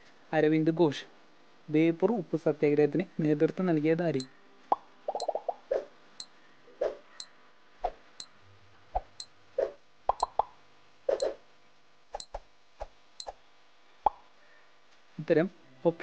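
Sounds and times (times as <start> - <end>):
timer clicks: 5.1 - 5.6, 10.1 - 10.5
brief pitched blips: 10.1 - 10.5.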